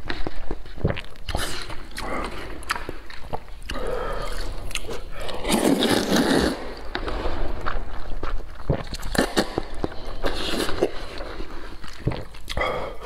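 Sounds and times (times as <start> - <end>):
wet chewing with mouth clicks: 0.0 - 13.0
loud slurp of noodles: 4.2 - 6.9.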